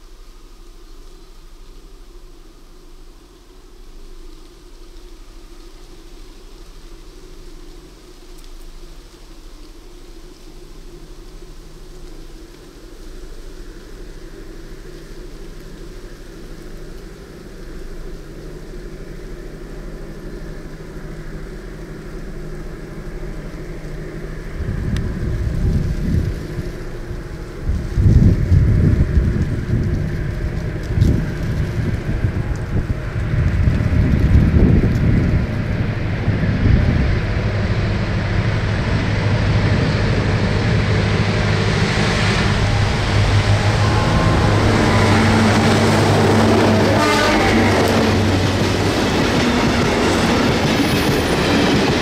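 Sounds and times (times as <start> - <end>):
locomotive engine rumbling: 13.6 - 52.0.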